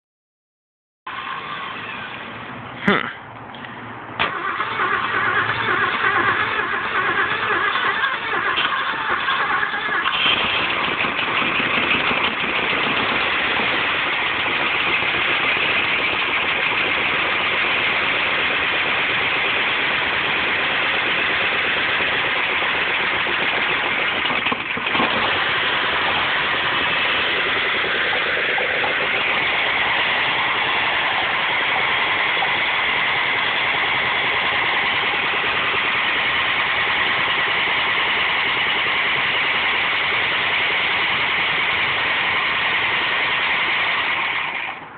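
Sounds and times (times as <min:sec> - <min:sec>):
pickup truck engine running: 0:01.1 - 0:44.9.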